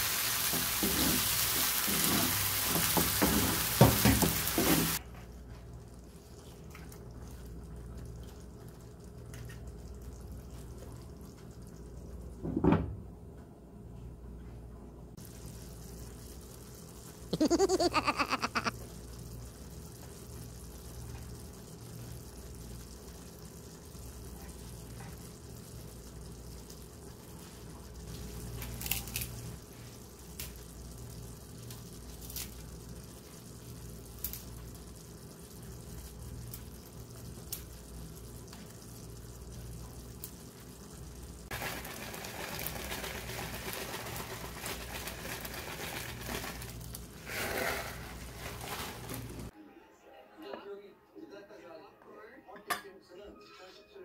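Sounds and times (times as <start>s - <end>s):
hiss: 0.0s - 5.0s
sauce bubbling in a pan: 0.0s - 12.6s, 15.1s - 49.6s.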